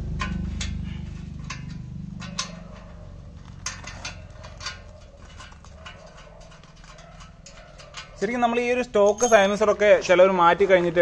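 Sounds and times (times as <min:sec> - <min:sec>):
spanner clinking on bolt: 0:00.1 - 0:10.2.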